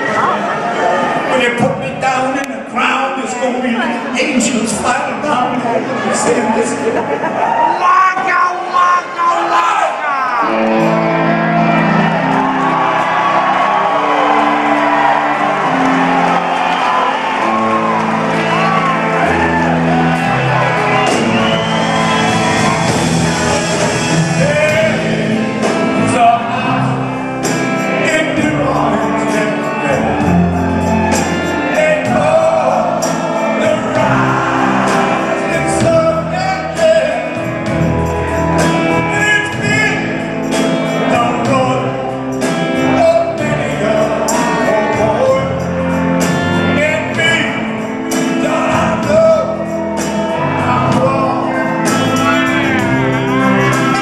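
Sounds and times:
live rock band playing: 0:00.0 - 0:54.0
drums beating: 0:10.7 - 0:54.0
man singing: 0:23.5 - 0:27.2, 0:27.8 - 0:30.4, 0:31.6 - 0:37.6, 0:38.9 - 0:40.3, 0:41.0 - 0:45.9, 0:46.6 - 0:49.7, 0:50.4 - 0:52.8.

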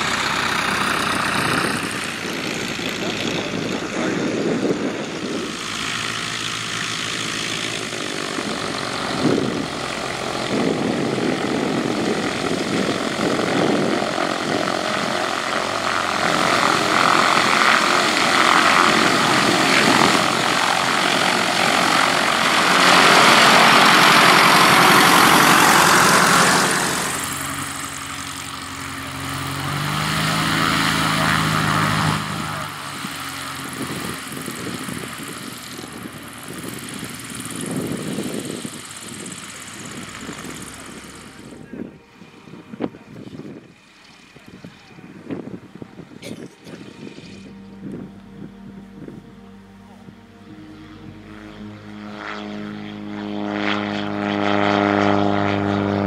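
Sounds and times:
light aircraft engines and propellers: 0:00.0 - 0:56.0.

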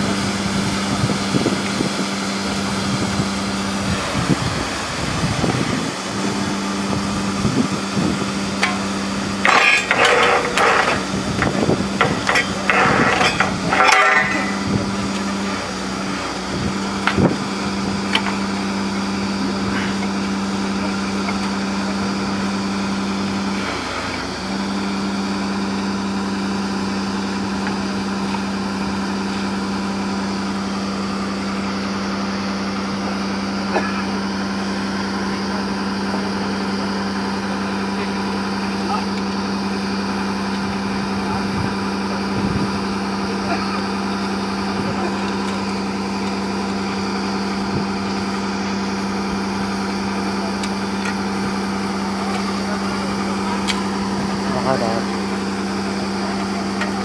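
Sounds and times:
drilling rig machine hum: 0:00.0 - 0:57.0
higher-pitched machine sound: 0:01.0 - 0:23.9.

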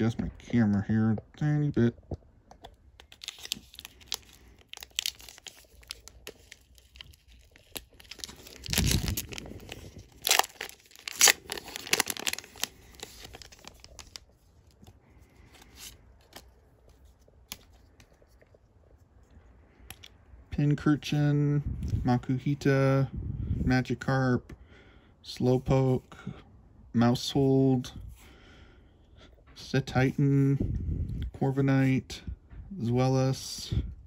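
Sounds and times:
foil wrapper tearing and crinkling: 0:03.0 - 0:14.3.

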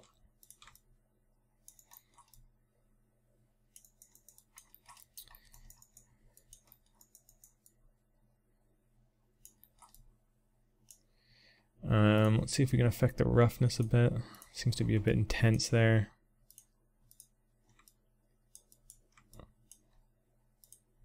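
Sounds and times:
mouse and keyboard clicks: 0:00.0 - 0:00.9, 0:01.7 - 0:02.4, 0:03.8 - 0:07.8, 0:09.4 - 0:10.1, 0:16.5 - 0:20.0, 0:20.6 - 0:20.9
low steady hum: 0:00.0 - 0:21.0.

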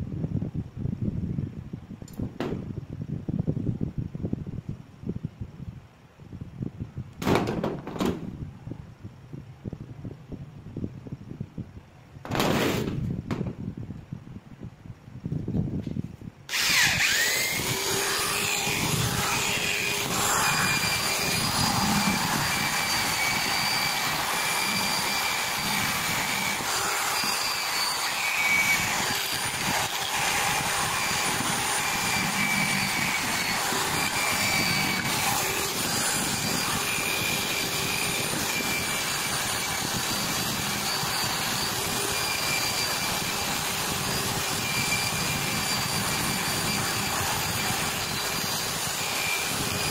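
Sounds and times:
electric drill motor whine: 0:16.5 - 0:49.9
wire brush scratching metal: 0:16.8 - 0:49.9.

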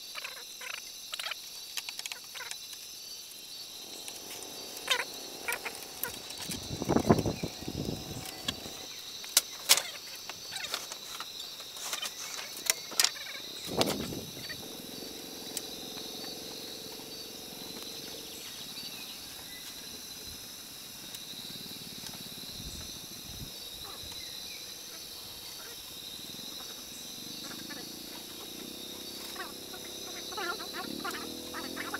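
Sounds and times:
insects chirring: 0:00.0 - 0:31.9.

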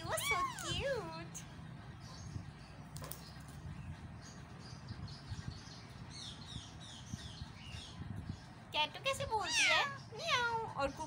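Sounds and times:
parakeet chirping: 0:00.0 - 0:01.0, 0:09.4 - 0:10.5.

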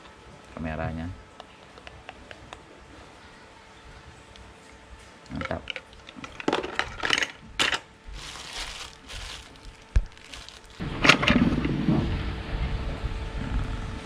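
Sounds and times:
cardboard and plastic rustling: 0:05.4 - 0:11.6
steady low rumble: 0:08.1 - 0:14.0.

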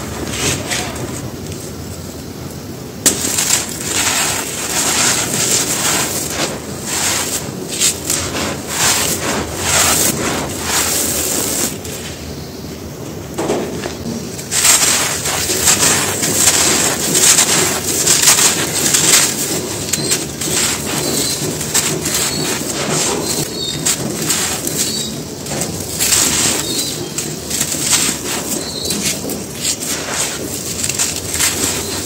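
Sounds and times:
hands crumbling dry cement balls: 0:03.0 - 0:11.9, 0:13.9 - 0:32.0
faint birds calling: 0:16.4 - 0:29.9.

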